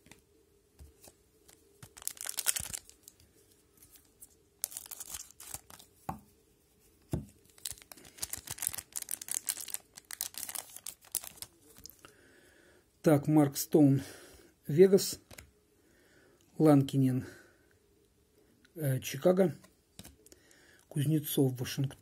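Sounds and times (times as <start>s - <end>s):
plastic wrapper tearing and crinkling: 1.8s - 3.2s, 4.6s - 5.9s, 7.4s - 12.0s.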